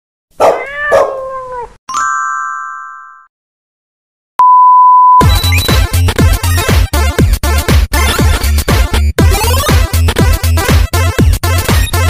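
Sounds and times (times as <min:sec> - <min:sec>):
high test-tone beep: 0:04.4 - 0:05.9
electronic dance music: 0:05.2 - 0:12.0.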